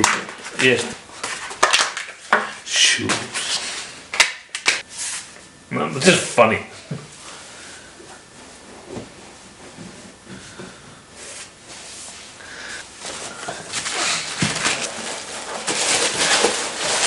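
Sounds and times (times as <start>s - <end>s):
packaging rustling and crinkling: 13.0s - 17.0s.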